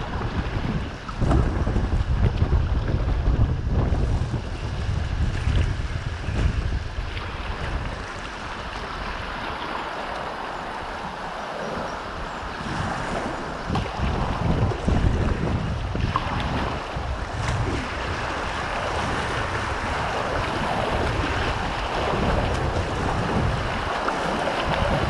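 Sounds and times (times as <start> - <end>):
wind buffeting microphone: 0.0 - 25.0
river rapids rushing: 6.8 - 15.5, 16.6 - 25.0.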